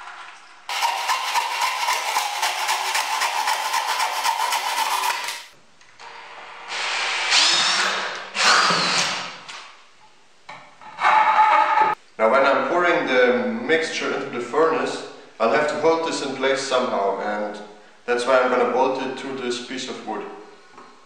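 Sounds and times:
table saw cutting plastic: 0:00.7 - 0:05.6, 0:06.8 - 0:09.4.

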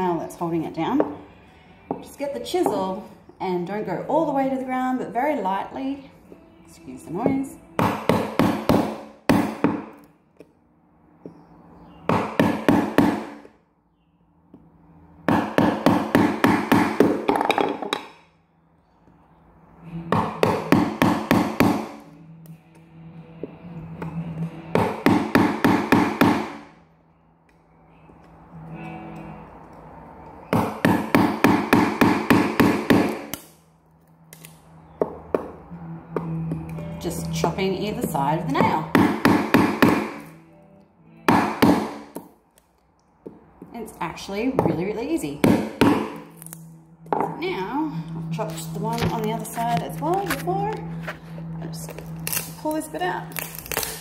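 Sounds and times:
hammer striking chisel: 0:07.2 - 0:10.0, 0:12.1 - 0:13.5, 0:15.3 - 0:18.2, 0:20.1 - 0:22.0, 0:24.7 - 0:26.6, 0:30.5 - 0:33.5, 0:38.0 - 0:40.3, 0:41.3 - 0:42.3, 0:45.4 - 0:46.2.

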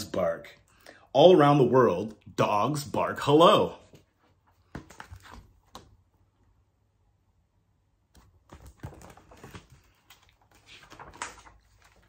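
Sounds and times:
book handling clicks and taps: 0:03.9 - 0:06.0.

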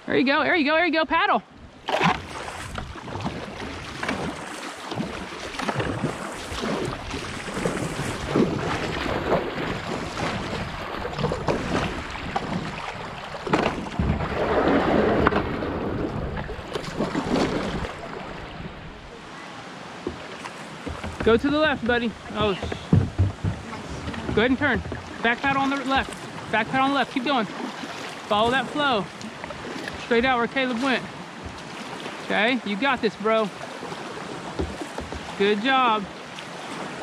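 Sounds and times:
wind buffeting microphone: 0:01.6 - 0:19.2, 0:20.8 - 0:25.3
paddle strokes splashing: 0:01.6 - 0:37.0.

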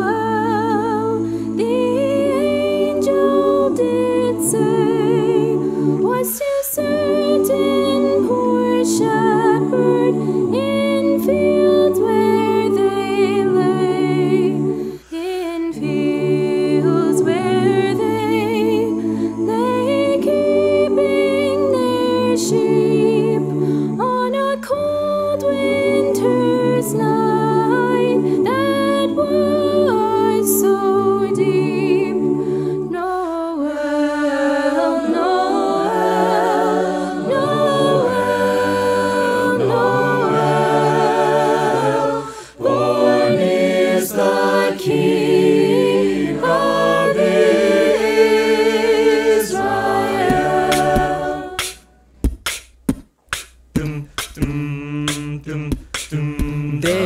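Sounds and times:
a cappella group singing: 0:00.0 - 0:52.6, 0:53.8 - 0:57.0
sharp percussive clicks: 0:50.3 - 0:57.0.

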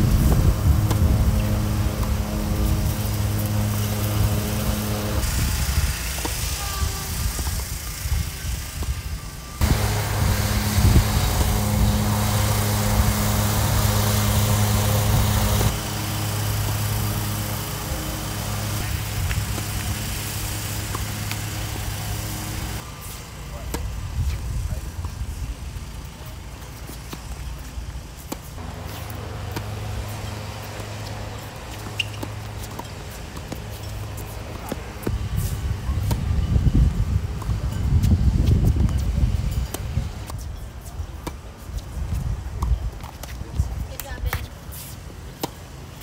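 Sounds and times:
tennis balls struck and bouncing: 0:00.0 - 0:07.8, 0:08.6 - 0:09.0, 0:09.6 - 0:46.0
steady low rumble: 0:00.0 - 0:26.4
low engine-like drone: 0:00.0 - 0:38.4.

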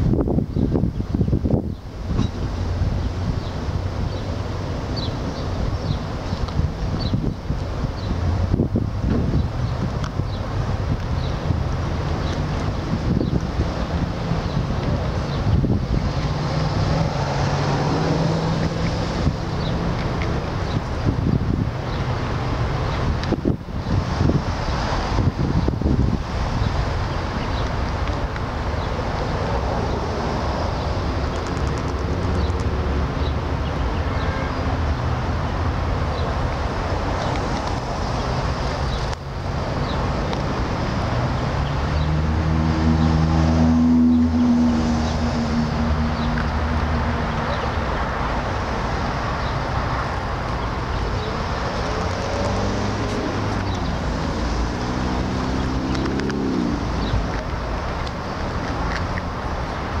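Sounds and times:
road traffic noise: 0:00.0 - 1:00.0
motor vehicle passing: 0:11.6 - 0:21.6, 0:22.2 - 0:33.6, 0:35.6 - 0:59.4
engine rising in pitch: 0:42.0 - 0:46.3.

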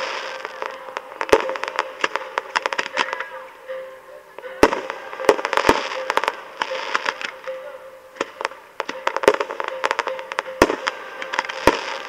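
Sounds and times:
firework pops and crackles: 0:00.0 - 0:03.3, 0:08.2 - 0:12.0.

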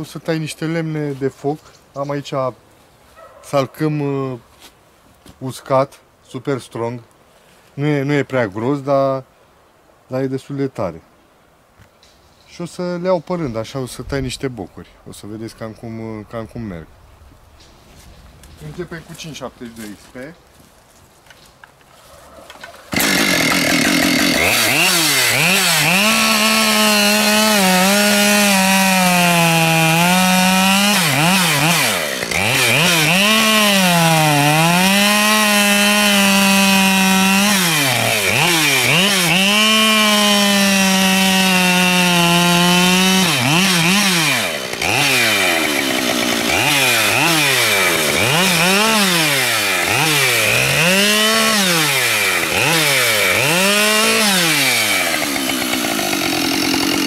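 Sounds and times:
chainsaw cutting logs: 0:22.5 - 0:57.0.

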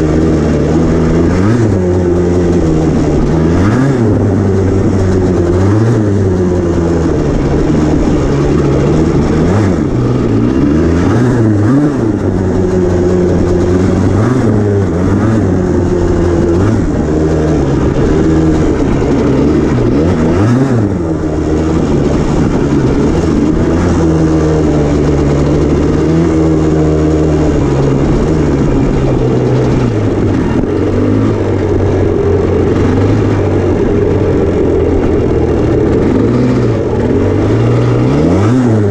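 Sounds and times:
two-stroke engine revving: 0:00.0 - 0:38.9.

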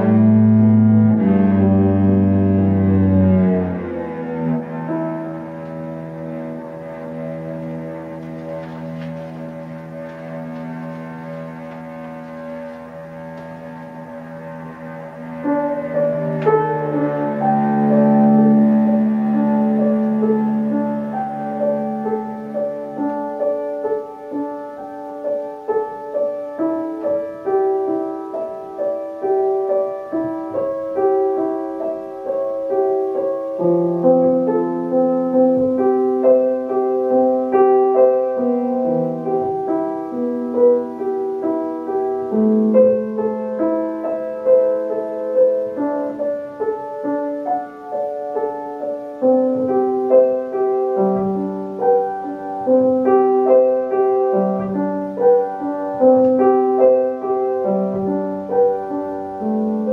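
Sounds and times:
cello playing low notes: 0:00.0 - 0:24.7
piano playing: 0:00.0 - 0:59.9.

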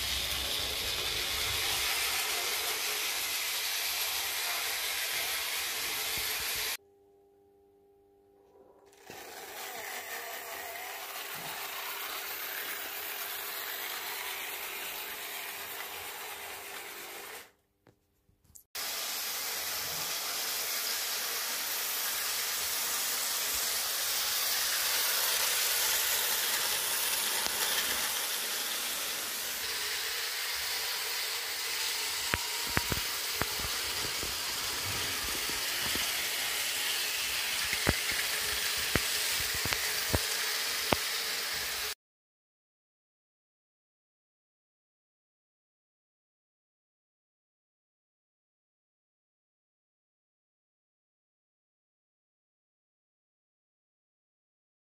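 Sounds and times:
model trains running on track: 0:00.0 - 0:06.8, 0:09.4 - 0:17.4, 0:18.9 - 0:41.9.

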